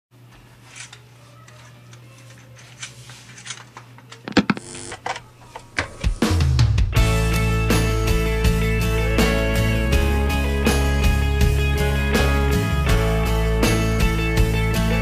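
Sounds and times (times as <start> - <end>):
electrical hum: 0.2 - 6.3
guitar music: 7.0 - 15.0.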